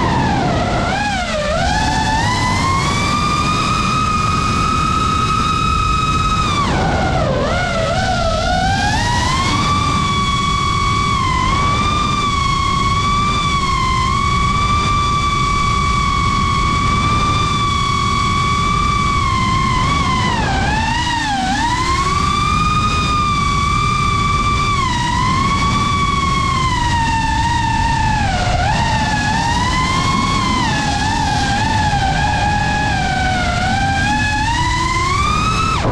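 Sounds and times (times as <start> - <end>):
drone motors whining: 0.0 - 35.9
wind rushing: 0.0 - 35.9.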